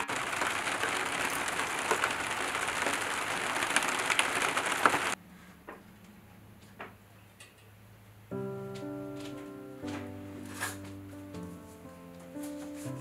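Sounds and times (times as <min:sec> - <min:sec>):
steady rain falling: 0:00.0 - 0:05.2.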